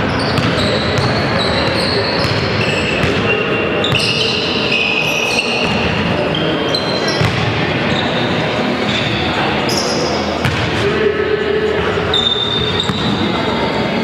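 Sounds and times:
sneaker squeaks on hardwood: 0:00.0 - 0:08.3, 0:12.1 - 0:13.2
crowd noise: 0:00.0 - 0:14.0
basketball bouncing on court: 0:00.2 - 0:04.3, 0:07.2 - 0:07.6, 0:10.4 - 0:10.7, 0:12.6 - 0:13.2.

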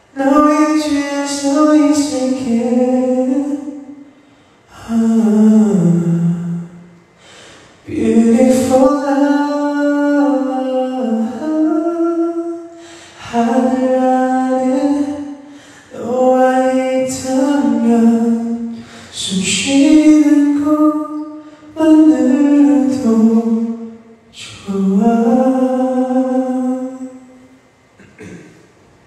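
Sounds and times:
man singing a cappella: 0:00.1 - 0:04.1, 0:04.7 - 0:27.4
short breaths: 0:07.2 - 0:07.8, 0:12.7 - 0:13.2, 0:15.4 - 0:15.9.

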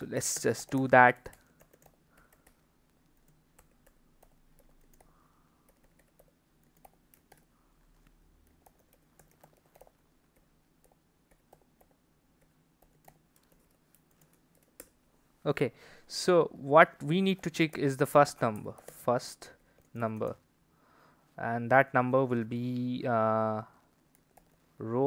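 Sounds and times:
keyboard typing: 0:00.1 - 0:07.5, 0:08.4 - 0:15.0, 0:17.6 - 0:19.1, 0:19.8 - 0:20.4, 0:23.9 - 0:24.7.

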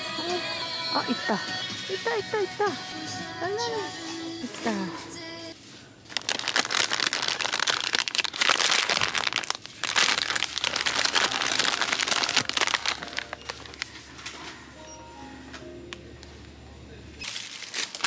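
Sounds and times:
plastic wrappers crinkling: 0:05.6 - 0:14.6, 0:17.2 - 0:18.0.

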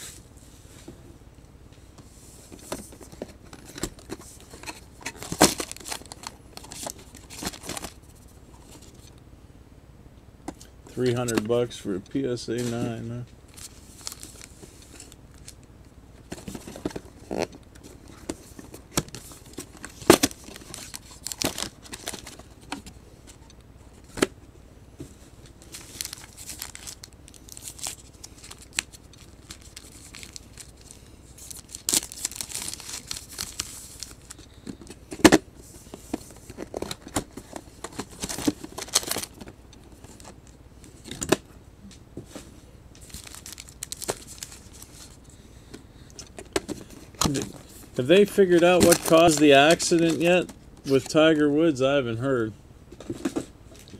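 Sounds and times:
foil wrappers crinkling: 0:03.5 - 0:08.0, 0:13.5 - 0:15.6, 0:16.3 - 0:22.9, 0:25.4 - 0:35.2, 0:36.1 - 0:40.4, 0:43.0 - 0:45.2, 0:46.2 - 0:51.3.

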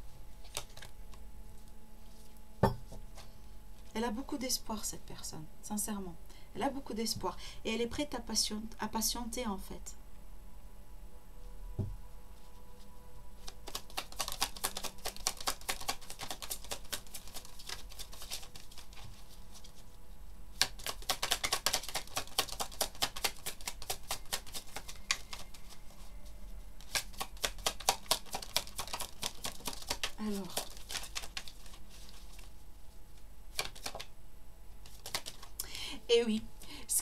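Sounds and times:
cards being shuffled: 0:00.4 - 0:02.4, 0:13.4 - 0:26.1, 0:26.8 - 0:34.1, 0:34.8 - 0:35.6.

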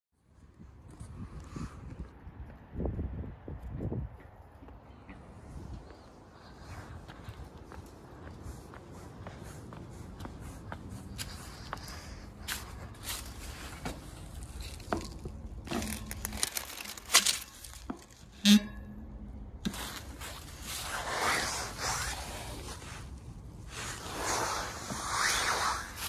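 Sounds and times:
footsteps in dry leaves: 0:05.9 - 0:18.3.

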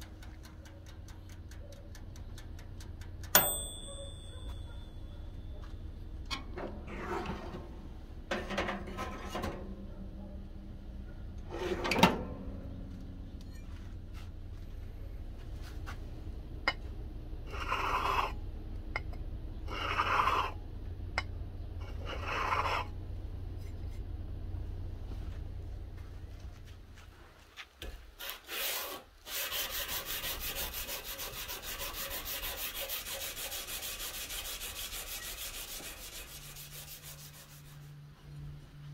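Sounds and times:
low hum: 0:00.0 - 0:27.4
rasping rubbing on glass bottle: 0:17.5 - 0:18.4, 0:19.7 - 0:20.6, 0:21.8 - 0:22.9, 0:28.2 - 0:37.9.

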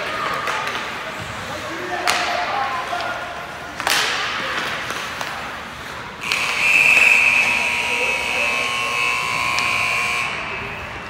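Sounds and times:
sticks and skates on ice: 0:00.0 - 0:07.1
rink buzzer: 0:06.2 - 0:11.0.

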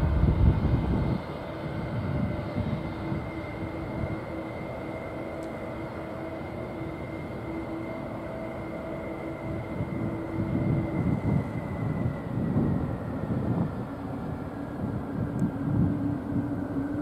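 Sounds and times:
low rumble: 0:00.0 - 0:04.4
jet engine whine: 0:00.0 - 0:17.0.

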